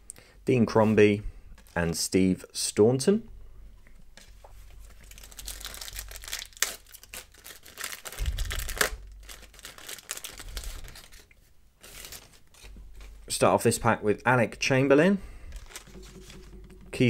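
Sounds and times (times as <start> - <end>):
wrapper tearing and crinkling: 4.8 - 13.1, 15.6 - 16.0.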